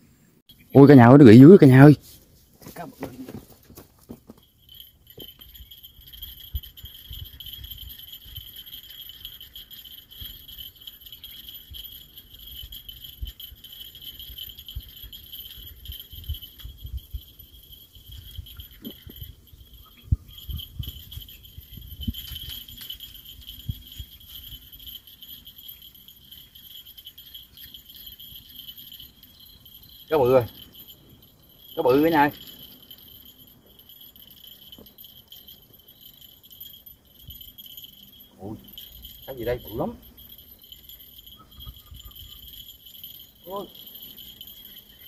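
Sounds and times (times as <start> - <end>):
insects buzzing shrilly: 4.3 - 45.0
wind on microphone: 11.6 - 25.0.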